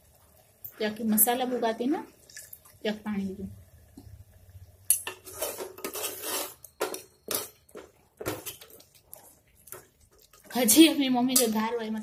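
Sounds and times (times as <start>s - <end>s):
ladle scraping metal pot: 4.9s - 8.9s.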